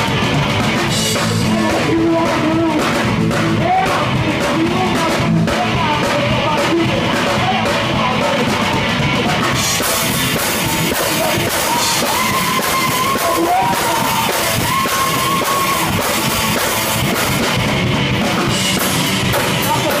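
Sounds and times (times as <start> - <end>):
live rock band playing: 0.0 - 20.0
person singing long notes: 1.2 - 9.0, 10.5 - 16.0.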